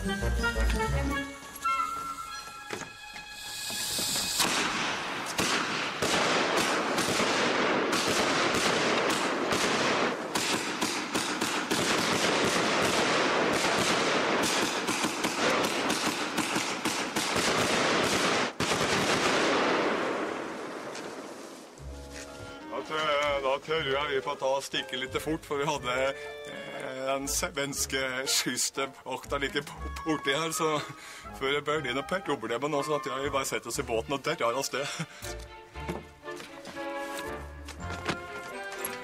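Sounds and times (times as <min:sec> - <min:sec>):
firework hiss: 0:03.4 - 0:05.9
fireworks cracking and banging: 0:03.6 - 0:21.8.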